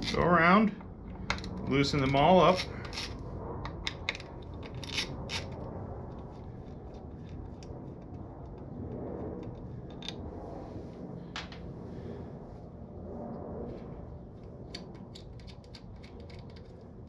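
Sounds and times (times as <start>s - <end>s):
screwdriver clicking and scraping: 0.0s - 0.2s, 1.2s - 6.2s, 9.4s - 10.2s, 14.7s - 17.0s
low steady hum: 0.0s - 17.0s.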